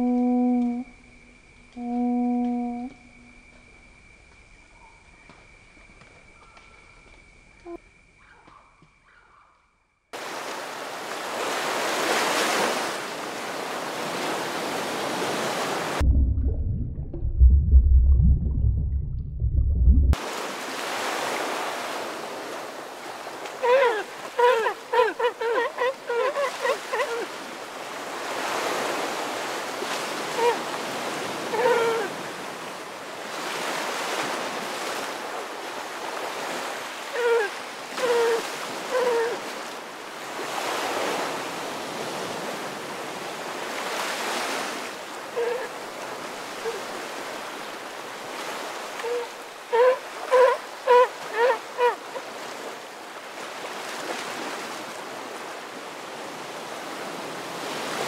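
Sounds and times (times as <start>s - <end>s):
surf washing on shore: 10.2s - 16.0s, 20.2s - 58.0s
deep rumble: 16.0s - 20.2s
sea lion barking: 23.6s - 27.3s, 31.4s - 32.2s, 49.0s - 52.1s.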